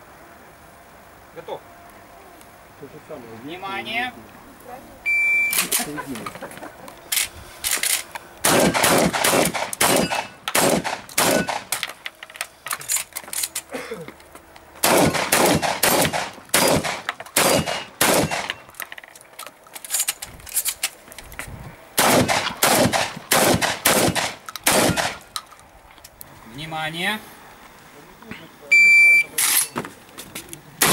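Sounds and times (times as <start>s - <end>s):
shotgun shots: 8.4s - 11.8s, 14.8s - 18.6s, 22.0s - 25.3s.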